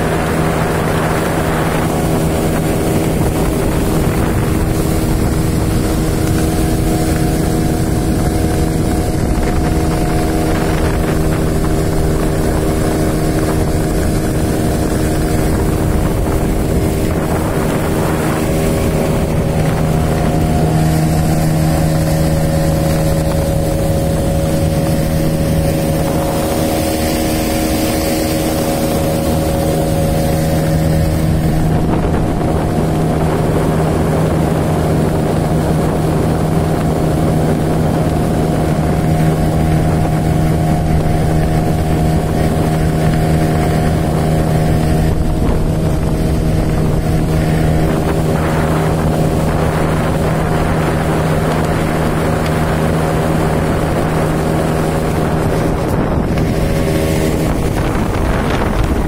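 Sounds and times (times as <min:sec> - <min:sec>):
outboard motor running: 0:00.0 - 0:59.0
wind buffeting microphone: 0:00.0 - 0:59.0.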